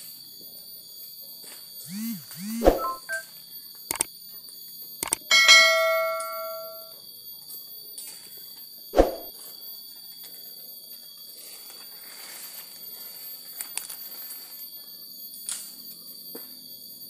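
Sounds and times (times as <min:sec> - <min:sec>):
mouse clicks: 0:05.0 - 0:05.2
bell chime: 0:05.3 - 0:06.9.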